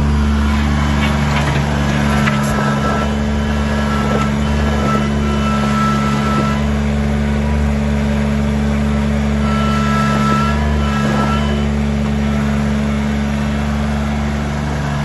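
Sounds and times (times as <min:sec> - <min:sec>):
high whine: 0:00.0 - 0:08.4
diesel tractor engine running: 0:00.0 - 0:15.0
tyres on gravel: 0:00.0 - 0:15.0.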